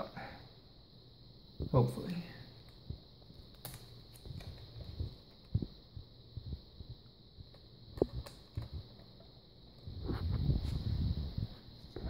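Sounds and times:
faint high-pitched whine: 0:00.0 - 0:12.0
low thumps and light clicks: 0:04.2 - 0:09.2.

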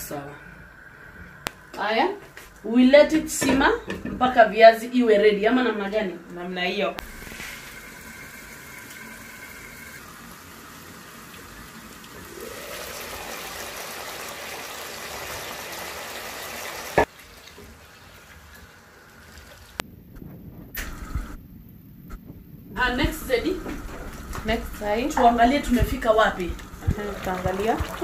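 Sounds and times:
pot bubbling: 0:07.0 - 0:19.9, 0:22.8 - 0:28.0.

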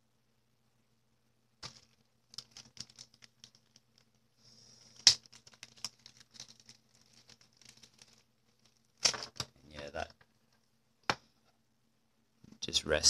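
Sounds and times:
plastic bag crinkling: 0:01.6 - 0:04.2, 0:04.8 - 0:09.4.

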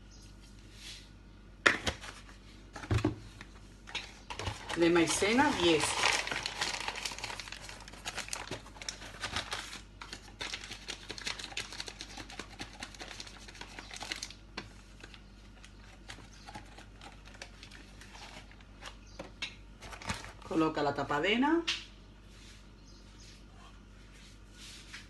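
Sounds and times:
paper bag rustling and crinkling: 0:03.5 - 0:19.0, 0:19.8 - 0:20.6.

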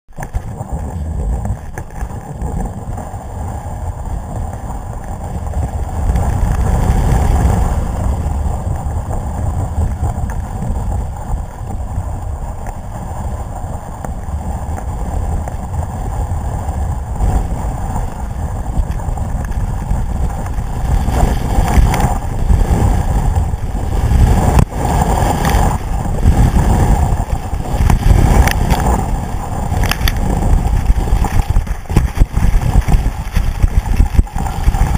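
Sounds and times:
skis carving over packed snow: 0:00.1 - 0:34.9
wind buffeting microphone: 0:00.1 - 0:34.9
ski scrapes: 0:16.1 - 0:34.9.

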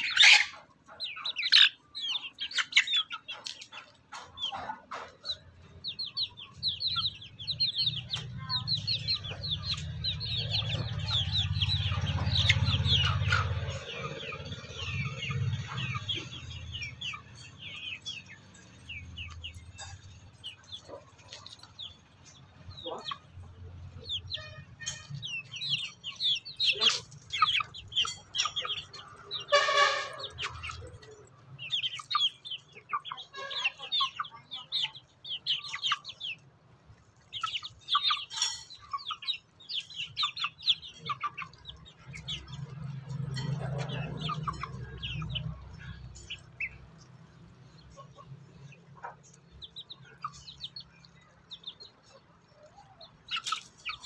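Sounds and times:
chickens clucking: 0:00.0 - 0:54.0.

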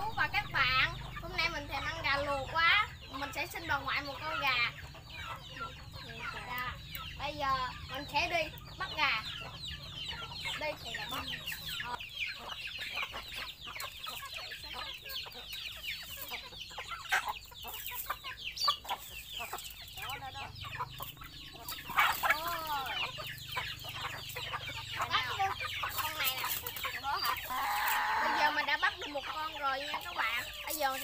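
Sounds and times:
chickens clucking: 0:00.0 - 0:31.0.

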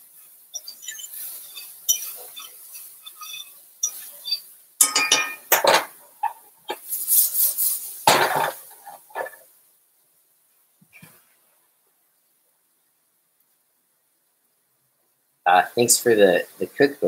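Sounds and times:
rice swishing in a tossed skillet: 0:00.0 - 0:04.4, 0:06.7 - 0:09.3
fork stirring in a skillet: 0:00.2 - 0:05.6
skillet clunking on burner: 0:04.8 - 0:06.0
metal utensils clattering: 0:04.8 - 0:06.4, 0:08.1 - 0:09.4.

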